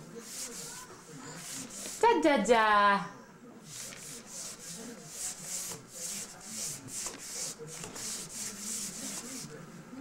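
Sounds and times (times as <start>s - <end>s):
hand rubbing plastic tray: 0.0s - 2.0s, 3.7s - 9.6s.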